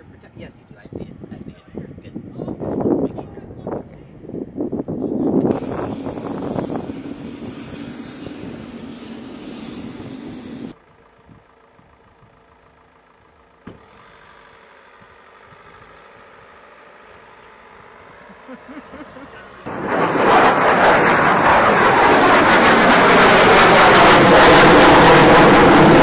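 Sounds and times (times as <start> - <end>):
engine running: 5.3 - 26.0.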